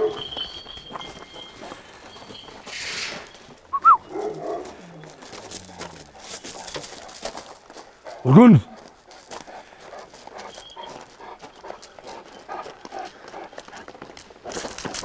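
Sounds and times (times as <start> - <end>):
dog whining: 2.8 - 6.1
dog grunting: 4.2 - 7.0.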